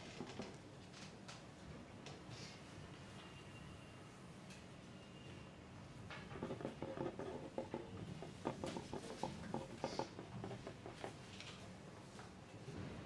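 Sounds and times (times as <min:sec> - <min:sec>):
pencils and paper tapping and rustling: 0:00.0 - 0:02.3, 0:06.1 - 0:13.0.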